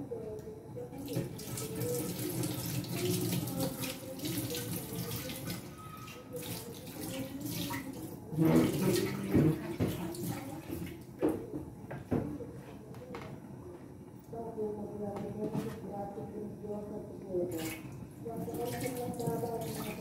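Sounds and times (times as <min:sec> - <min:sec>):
water running from a tap: 0:00.9 - 0:11.0, 0:17.5 - 0:20.0.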